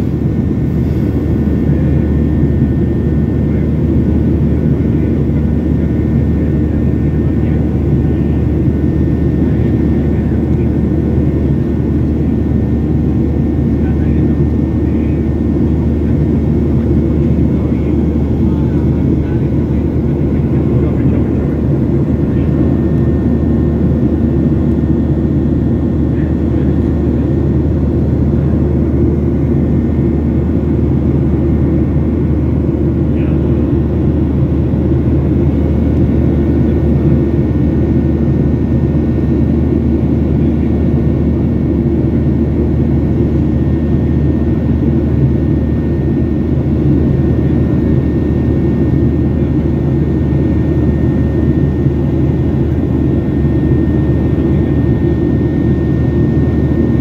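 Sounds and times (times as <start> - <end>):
airplane cabin engine rumble: 0.0 - 57.0.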